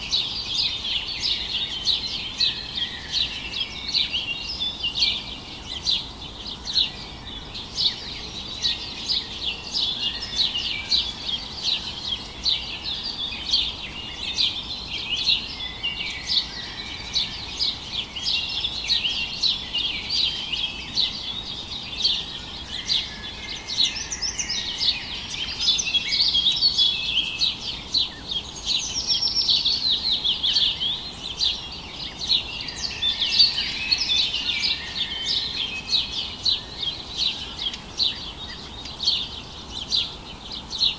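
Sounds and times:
small birds chirping: 0.0 - 40.9.

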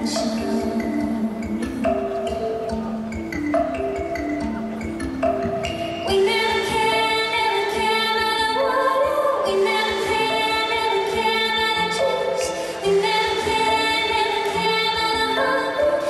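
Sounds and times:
woman singing long notes: 0.0 - 2.8.

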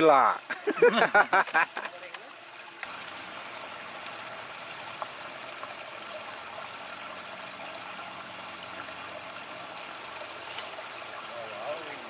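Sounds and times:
water trickling: 0.0 - 12.0.

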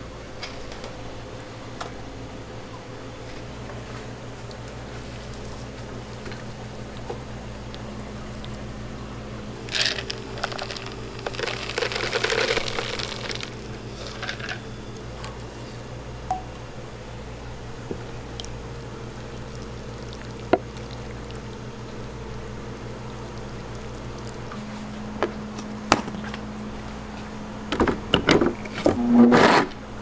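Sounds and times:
steady low hum: 0.0 - 30.0
nuts rattling into plastic jar: 9.7 - 14.6.

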